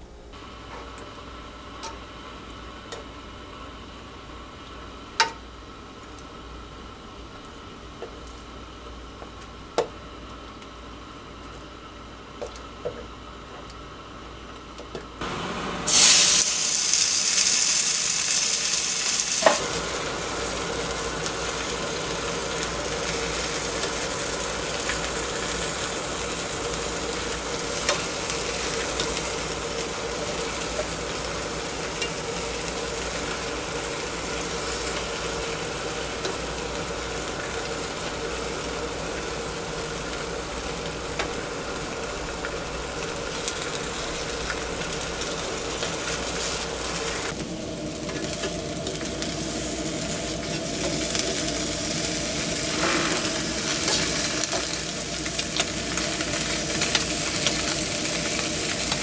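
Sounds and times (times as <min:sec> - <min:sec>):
gas stove igniting hiss: 0:00.0 - 0:11.1, 0:11.8 - 0:59.0
batter sizzling: 0:15.2 - 0:59.0
gas flame hissing: 0:15.2 - 0:59.0.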